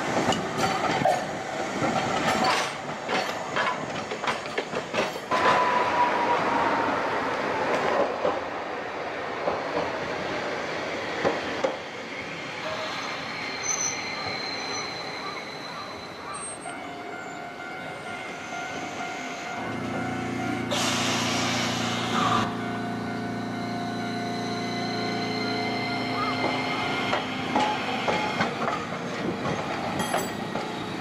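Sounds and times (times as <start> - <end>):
tram wheels clicking over rails: 0.0 - 5.9, 26.1 - 31.0
high wheel squeal: 12.3 - 19.4, 23.2 - 28.4
air hiss: 20.7 - 22.4.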